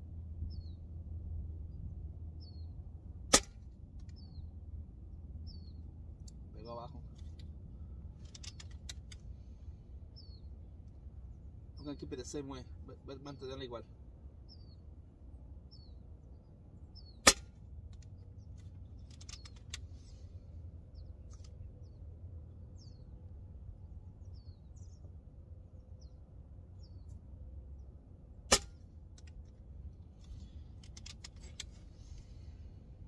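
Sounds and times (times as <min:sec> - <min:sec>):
air rifle shots: 0:03.3 - 0:03.7, 0:17.2 - 0:17.6, 0:28.5 - 0:28.9.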